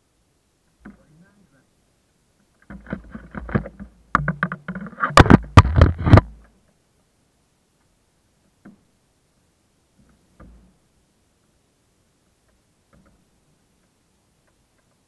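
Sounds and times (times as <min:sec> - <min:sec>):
faint ticks: 0:12.2 - 0:15.0.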